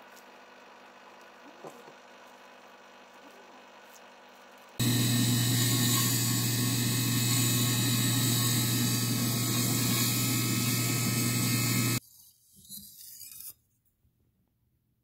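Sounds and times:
grinder motor hum: 4.8 - 12.0
grinding wheel hissing on steel: 4.8 - 12.0.

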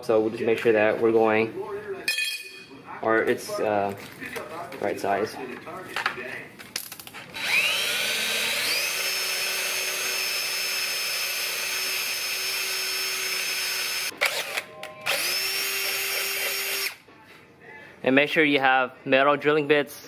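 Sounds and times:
electric drill boring through metal: 7.3 - 17.0.

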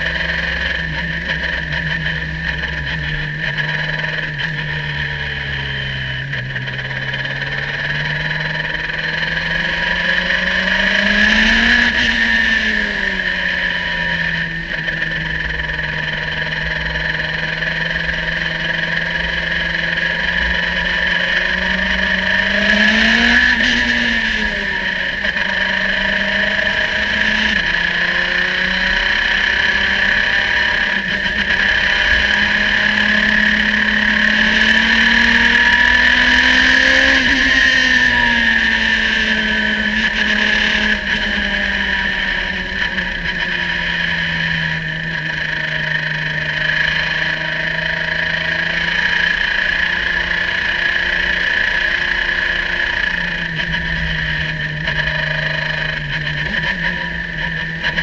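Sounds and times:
racing car engine running: 0.0 - 58.0.

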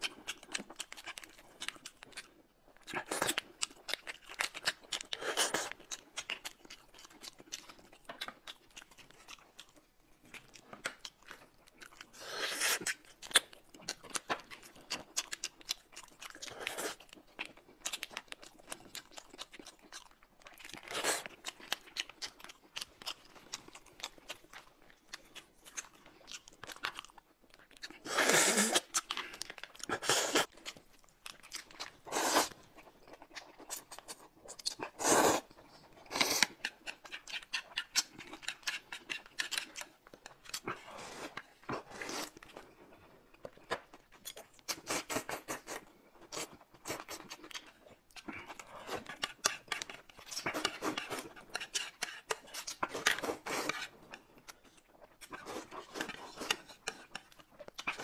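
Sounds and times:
chewing: 0.0 - 58.0
slurping noodles: 28.0 - 28.9, 32.1 - 32.6, 34.9 - 35.5.

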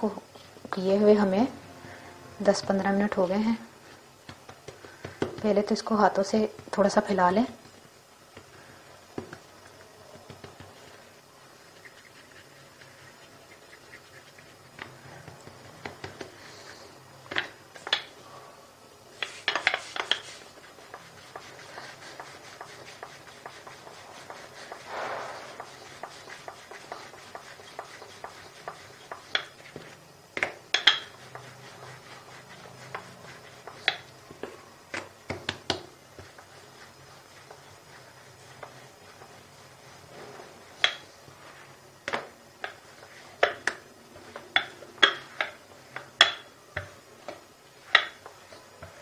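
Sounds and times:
rolling pin rubbing on dough: 2.4 - 18.0, 19.2 - 41.8, 42.6 - 49.0
rolling pin knocking and clacking: 25.6 - 31.5, 33.6 - 35.9, 44.4 - 48.2.

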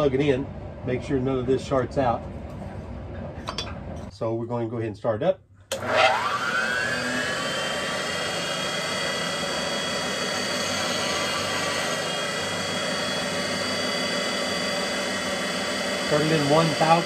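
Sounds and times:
grinding machine motor whining: 5.7 - 17.0.

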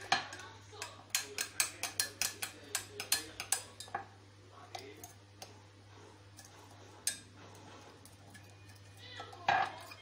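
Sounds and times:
metal spoon clinking against cup: 0.0 - 4.0.

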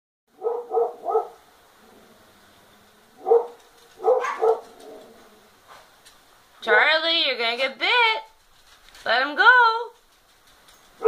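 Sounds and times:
dog barking: 0.4 - 1.5, 3.2 - 5.0.

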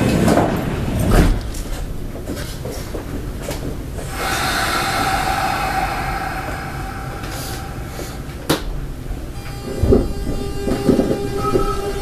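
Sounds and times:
train clack: 0.0 - 12.0
train steady tone: 3.4 - 12.0.

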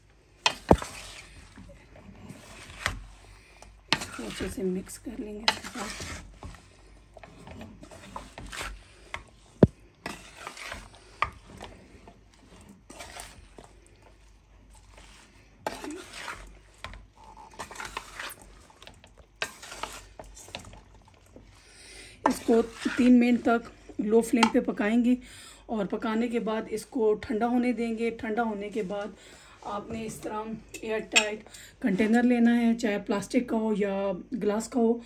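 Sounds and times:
spatula scraping metal pan: 0.4 - 1.6, 2.2 - 20.8, 22.2 - 24.6.

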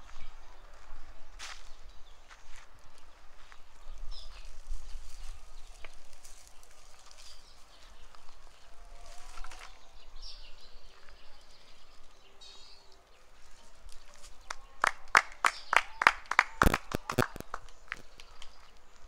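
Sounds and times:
faint outdoor background noise: 0.0 - 19.0
sharp claps: 14.5 - 18.6.

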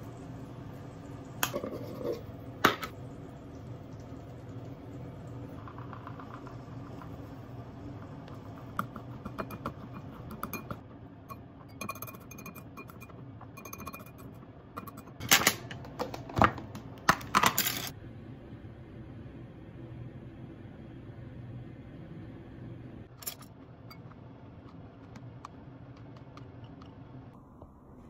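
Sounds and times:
chopsticks clinking ceramic bowl: 9.3 - 15.2.

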